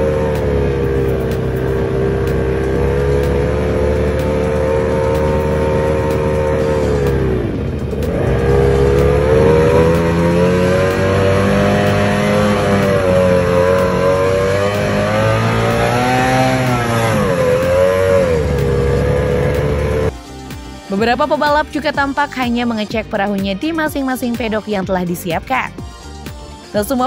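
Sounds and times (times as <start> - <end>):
racing outboard engine revving: 0.0 - 20.3.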